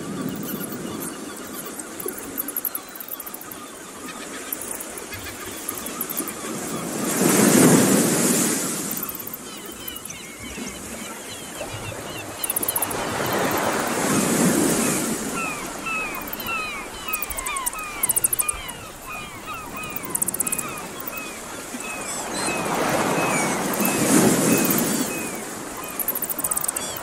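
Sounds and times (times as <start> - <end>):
surf washing over rocks: 5.7 - 9.9, 10.7 - 27.0.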